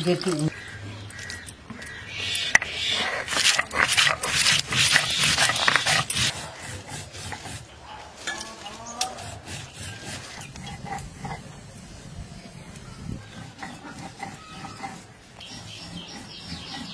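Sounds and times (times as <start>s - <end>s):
stone roller scraping grinding stone: 3.0s - 11.6s, 13.2s - 16.9s.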